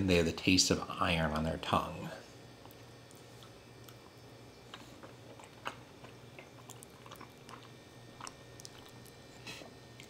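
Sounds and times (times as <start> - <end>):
wet mouth chewing clicks: 2.6 - 9.3.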